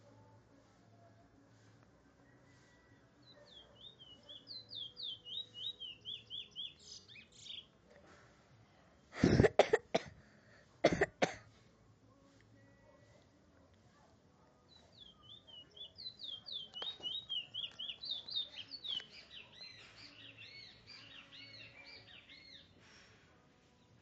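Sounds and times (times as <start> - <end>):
bullfinch singing: 3.3 - 7.7, 14.7 - 22.8
person coughing: 9.2 - 10.2, 10.8 - 11.4.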